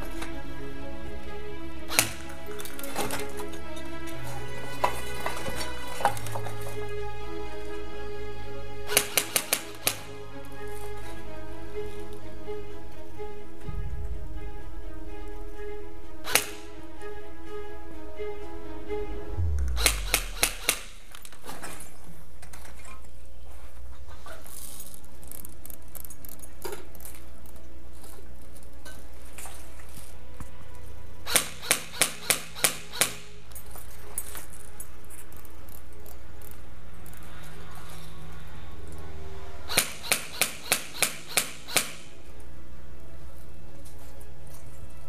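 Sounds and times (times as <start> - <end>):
background music: 0.0 - 21.8, 27.0 - 45.0
airsoft rifle shots: 8.9 - 10.0, 16.3 - 16.6, 19.6 - 21.1, 39.7 - 42.1.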